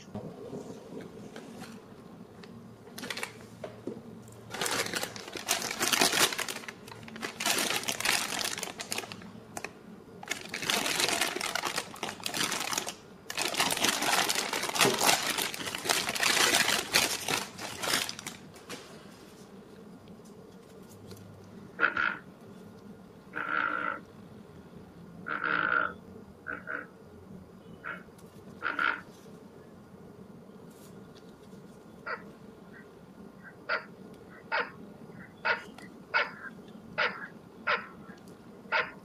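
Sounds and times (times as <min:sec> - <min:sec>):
plastic bag crinkling: 0:02.9 - 0:03.5, 0:04.3 - 0:19.2.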